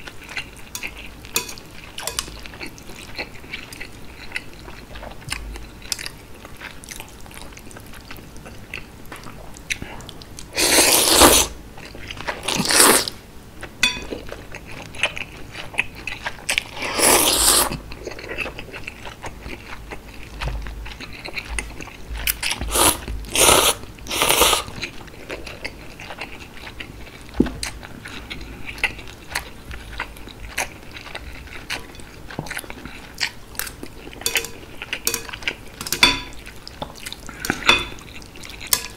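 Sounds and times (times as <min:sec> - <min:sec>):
wet chewing: 0:00.0 - 0:13.2, 0:14.0 - 0:38.9
loud slurps: 0:16.8 - 0:17.7.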